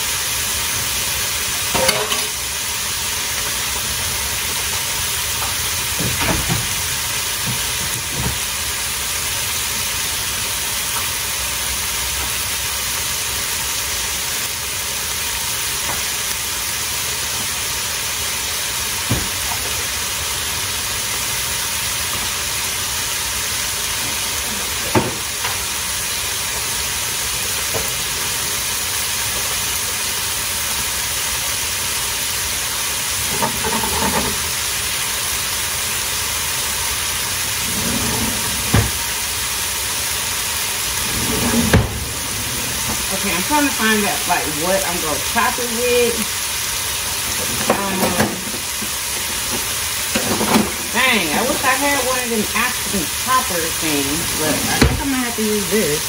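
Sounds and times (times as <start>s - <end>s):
meat and onions sizzling in a pan: 0.0s - 41.2s, 41.8s - 56.0s.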